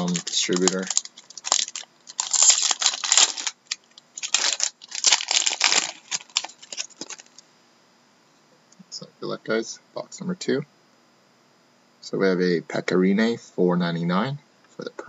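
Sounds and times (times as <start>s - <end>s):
wrapper tearing and crinkling: 0.0s - 7.4s.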